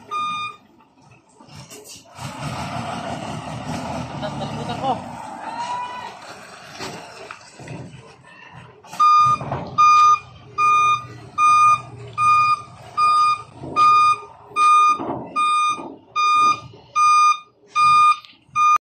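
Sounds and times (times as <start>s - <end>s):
truck reversing alarm beeping: 0.0s - 0.7s, 8.9s - 18.8s
diesel engine running: 0.0s - 18.8s.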